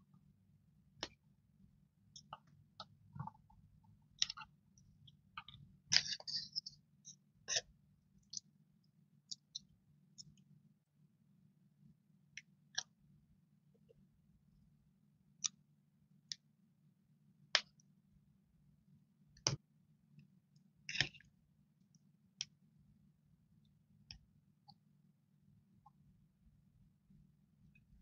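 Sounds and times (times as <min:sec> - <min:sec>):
faint low hum: 0:00.0 - 0:28.0.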